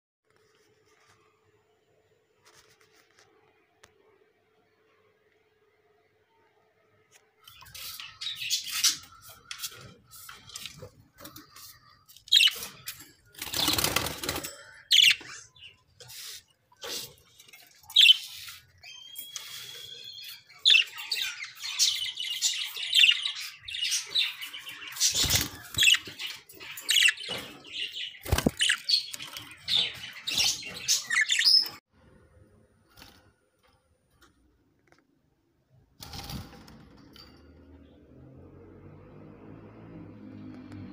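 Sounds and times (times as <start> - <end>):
budgerigars chirping: 12.3 - 12.8, 14.9 - 16.4, 17.9 - 31.8
wings flapping: 13.3 - 14.6, 28.2 - 29.3.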